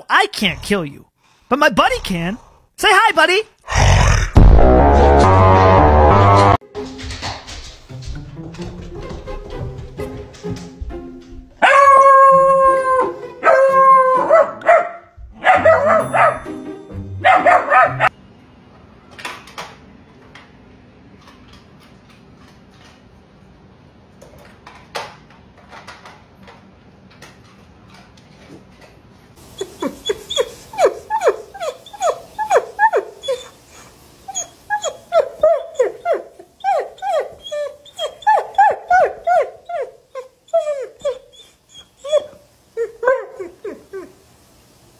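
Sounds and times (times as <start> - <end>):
dogs howling and barking: 11.6 - 16.4, 17.2 - 18.1, 29.5 - 33.7, 34.3 - 44.2
dog whining and yipping: 15.5 - 16.4, 29.5 - 44.2.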